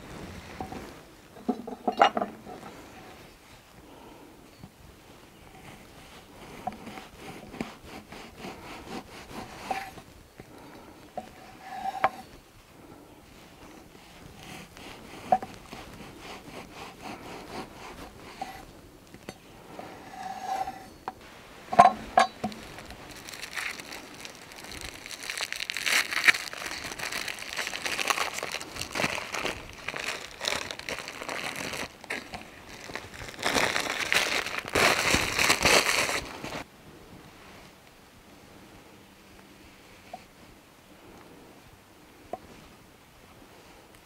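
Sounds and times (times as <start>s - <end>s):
knife sawing through crusty bread: 6.4s - 10.0s, 14.1s - 18.7s
paper wrapping crinkling: 22.4s - 36.6s.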